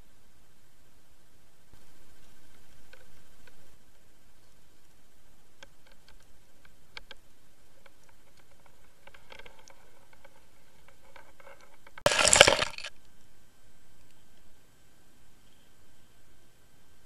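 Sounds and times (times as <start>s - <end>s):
faint ticks: 1.7s - 12.0s, 12.9s - 14.6s
splashing and clinking ice: 12.1s - 12.9s.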